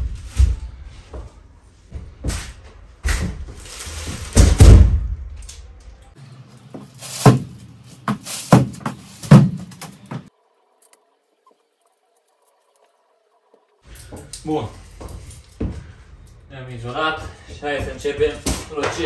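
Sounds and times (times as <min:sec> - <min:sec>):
loud rustling thump: 0:07.0 - 0:10.3.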